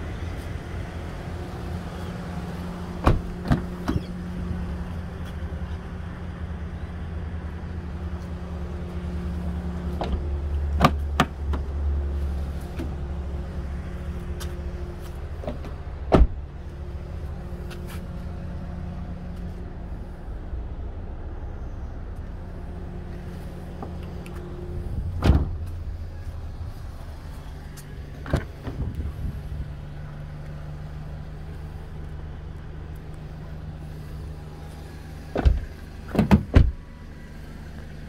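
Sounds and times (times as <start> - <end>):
car door thump: 3.0 - 4.1, 15.5 - 16.4, 25.2 - 25.7, 35.3 - 36.8
car door clicks: 15.4 - 16.4, 35.3 - 36.8.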